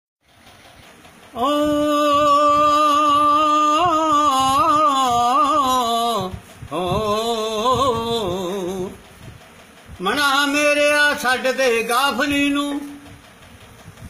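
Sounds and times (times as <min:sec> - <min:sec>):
old man singing unaccompanied: 0:01.3 - 0:09.0, 0:10.0 - 0:13.2.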